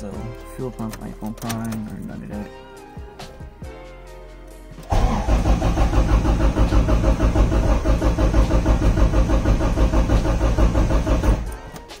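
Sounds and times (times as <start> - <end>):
engine cranking on starter: 4.9 - 11.8.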